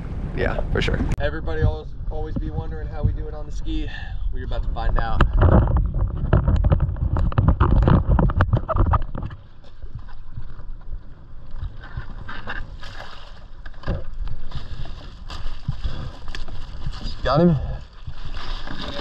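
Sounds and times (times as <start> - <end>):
water sloshing at hull: 4.8 - 19.0.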